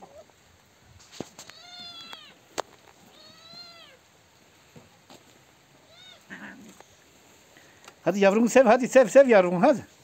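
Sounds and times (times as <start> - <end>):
cat meowing: 1.4 - 2.4, 3.0 - 4.0, 5.8 - 6.7.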